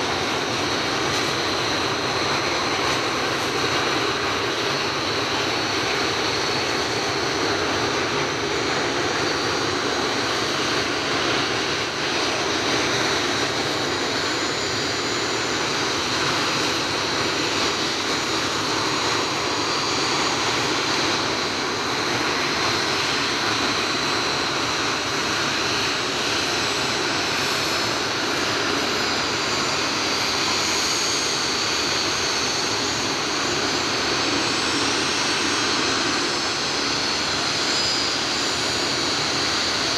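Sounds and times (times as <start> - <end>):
jet engines whining while taxiing: 0.0 - 39.9.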